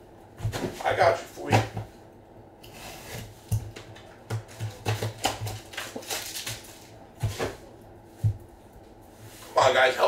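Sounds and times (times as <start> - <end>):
foil packs crinkling: 4.9 - 7.0.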